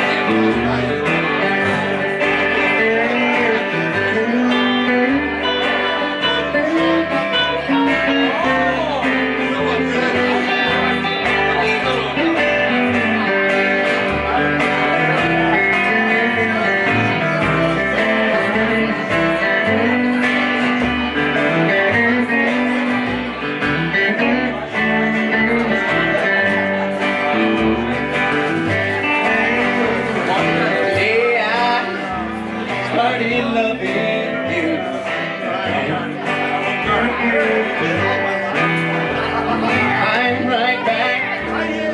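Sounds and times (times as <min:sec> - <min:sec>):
guitar: 0:00.0 - 0:41.9
live country band playing: 0:00.0 - 0:41.9.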